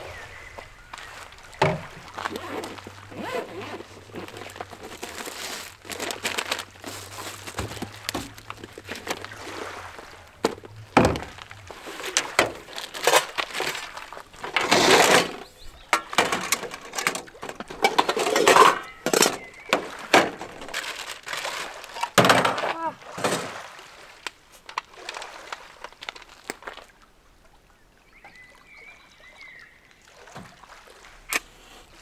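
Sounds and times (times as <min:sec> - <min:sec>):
bag rustling: 0:01.0 - 0:23.4.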